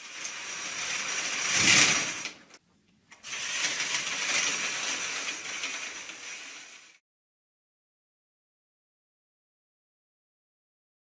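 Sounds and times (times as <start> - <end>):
curtain drawn along track: 0.0 - 7.0.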